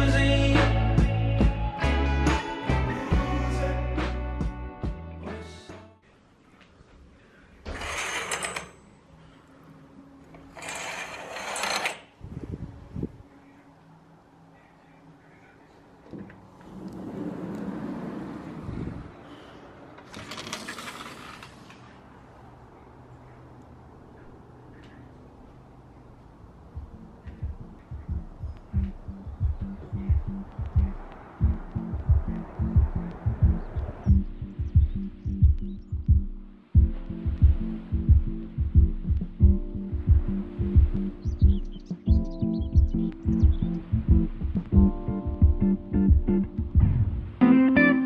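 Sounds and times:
curtains scraping open: 7.7 - 8.8, 10.5 - 12.1, 20.1 - 21.9
kick drum beat: 26.8 - 47.2.

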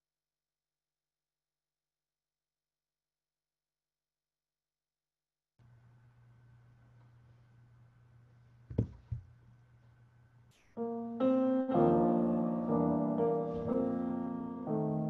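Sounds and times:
faint steady hum: 5.6 - 11.4
sharp knocks: 8.7 - 9.3
piano playing slow chords: 10.6 - 15.0.

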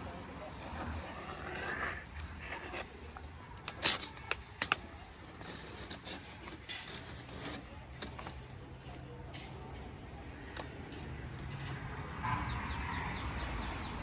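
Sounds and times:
pencil scratching on plywood: 0.5 - 7.8.

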